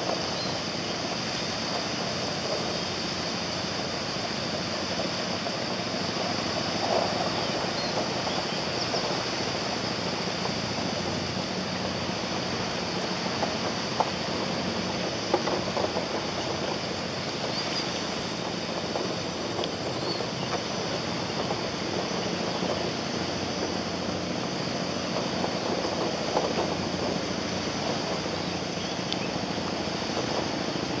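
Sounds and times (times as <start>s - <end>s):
rushing outdoor background noise: 0.0s - 31.0s
faint clicks: 17.4s - 22.9s.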